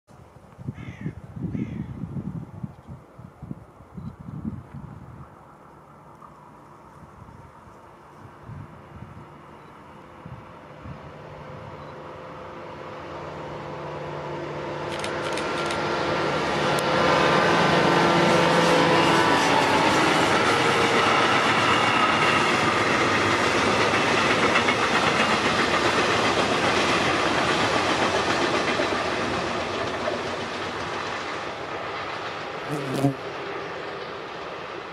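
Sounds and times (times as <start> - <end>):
diesel locomotive engine drone: 0.1 - 34.9
train wheels clattering on rails: 14.8 - 32.6.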